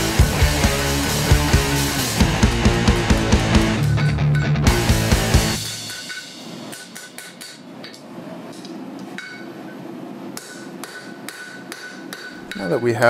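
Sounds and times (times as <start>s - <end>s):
hammer striking steel on anvil: 5.6s - 8.0s, 8.6s - 9.6s, 10.4s - 13.0s.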